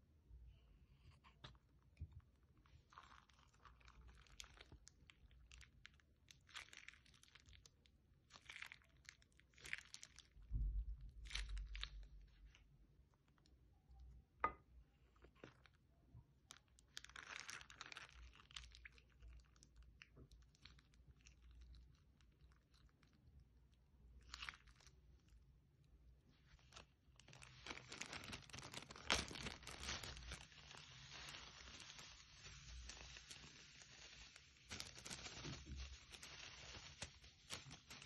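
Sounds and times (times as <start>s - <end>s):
slime squishing: 1.2s - 13.4s, 15.0s - 38.0s
plastic bag crinkling: 2.6s - 10.4s, 26.5s - 38.0s.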